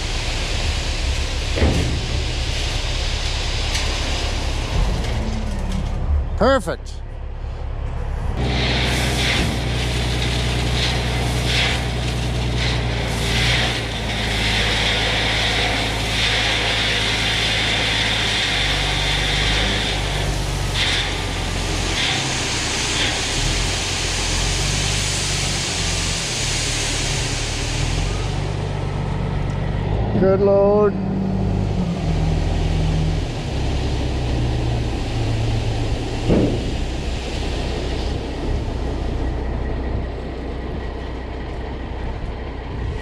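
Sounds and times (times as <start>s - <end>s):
gravel pouring out: 0.0s - 5.6s, 8.4s - 28.7s
diesel truck engine running: 0.0s - 43.0s.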